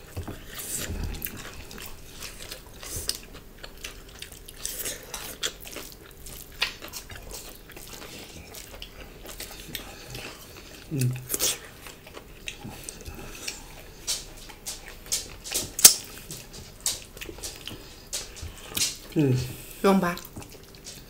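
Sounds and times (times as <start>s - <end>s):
chewing and mouth smacks: 0.0s - 21.0s
fingers working food on plates: 11.7s - 19.2s.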